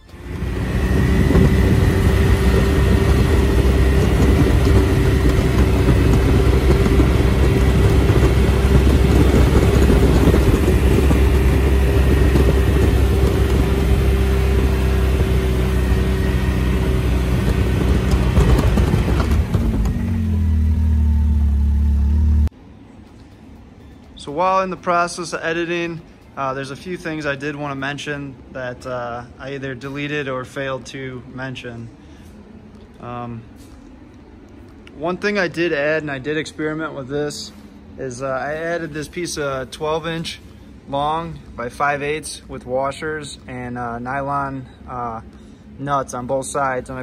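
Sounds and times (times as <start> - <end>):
vehicle engine running under load: 0.0 - 22.5.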